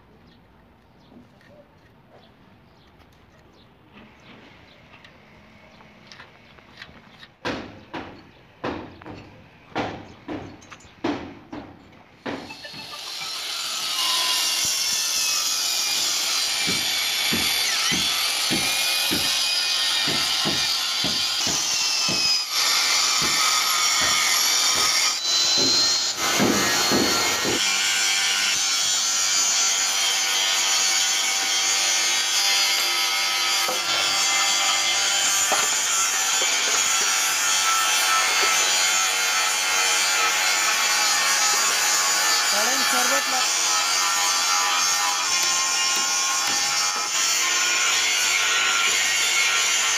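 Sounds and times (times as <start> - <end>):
drill boring into steel: 12.5 - 27.8.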